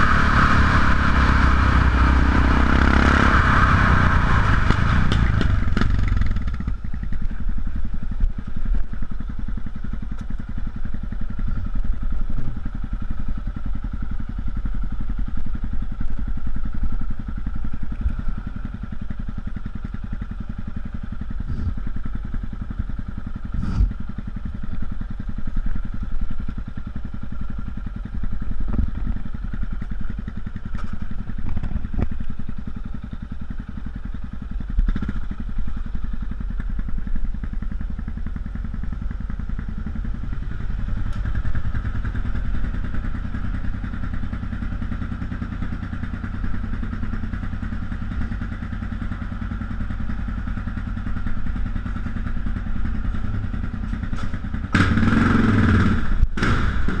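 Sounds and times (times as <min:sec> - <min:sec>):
motorcycle engine idling: 0:00.3 - 0:57.0.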